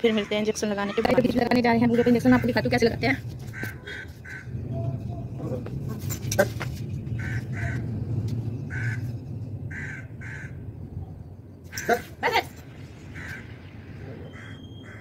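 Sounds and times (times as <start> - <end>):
crows cawing: 0.1 - 2.7, 3.5 - 4.6, 7.1 - 7.9, 8.7 - 9.1, 9.7 - 10.6, 13.0 - 13.7, 14.3 - 15.0
steady low rumble: 1.0 - 15.0.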